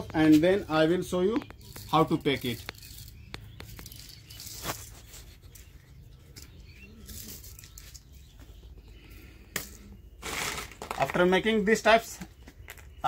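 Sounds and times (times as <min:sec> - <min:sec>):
plastic packets rustling: 0:10.2 - 0:11.3.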